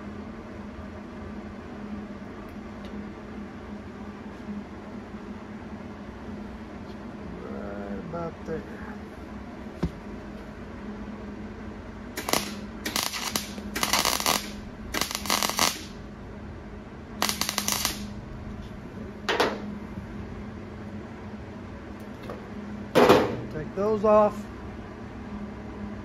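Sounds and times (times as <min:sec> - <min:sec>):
welder arc crackling: 0:12.1 - 0:16.1, 0:17.2 - 0:18.8.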